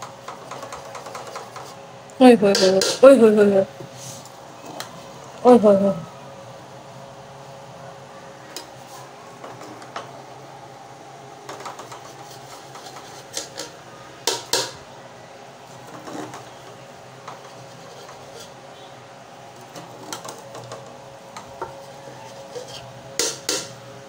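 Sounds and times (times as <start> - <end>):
steady low hum: 0.0 - 24.0
metal spoon scraping cooking pot: 2.4 - 3.1, 11.7 - 13.8, 17.3 - 18.6, 21.6 - 23.8.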